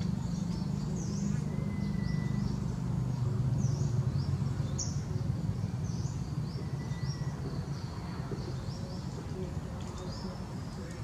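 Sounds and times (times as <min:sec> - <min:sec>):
small birds chirping: 0:00.0 - 0:11.0
steady low rumble: 0:00.0 - 0:11.0.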